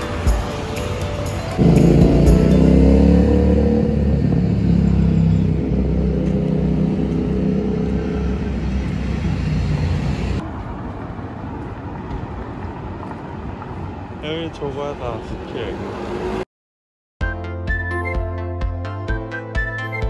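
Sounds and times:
background music: 0.0s - 4.4s, 17.2s - 20.0s
road traffic rumble: 0.0s - 16.5s.

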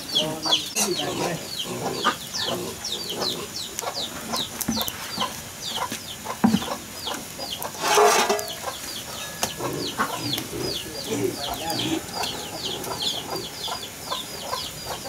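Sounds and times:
chickens cheeping and clucking: 0.0s - 15.0s.

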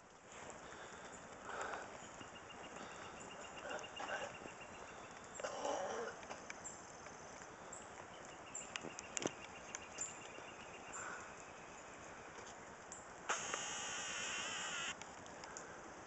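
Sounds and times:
camera lens motor whirring: 13.3s - 15.0s
small clicks: 13.3s - 15.7s.

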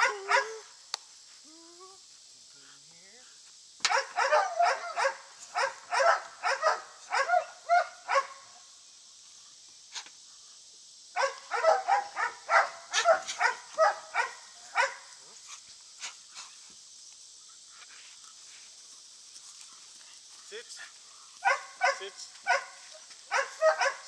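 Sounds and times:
dog barking: 0.0s - 0.6s, 3.8s - 8.4s, 11.2s - 15.1s, 21.4s - 24.0s.

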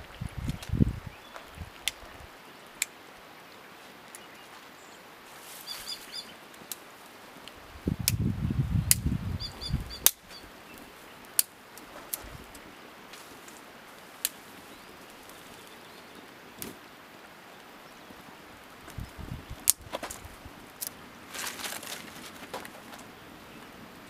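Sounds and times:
small bird chirping: 5.6s - 6.4s, 9.2s - 11.2s
fire snapping and crackling: 6.5s - 9.2s, 9.8s - 15.8s, 16.5s - 23.0s
rustling handling: 21.3s - 23.1s.

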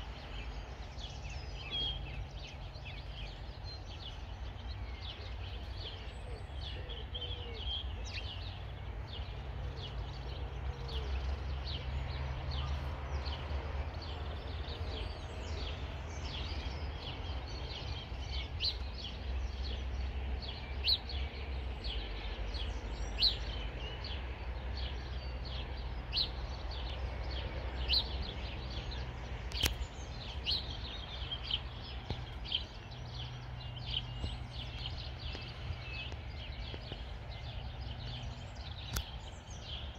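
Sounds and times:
low outdoor rumble: 0.0s - 39.9s
small birds chirping: 0.0s - 39.9s
sharp clicks: 29.5s - 29.9s, 38.8s - 39.2s.

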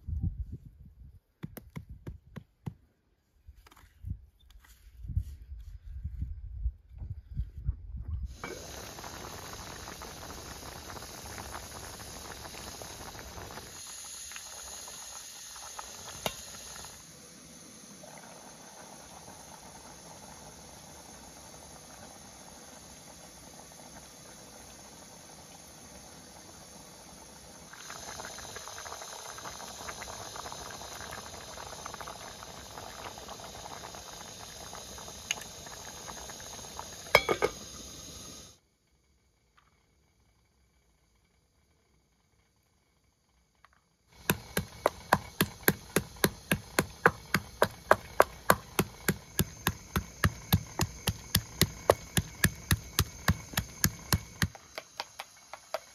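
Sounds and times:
stew bubbling: 8.3s - 17.1s, 17.9s - 37.8s, 44.2s - 55.9s
lid clacking on pot: 37.2s - 37.6s.

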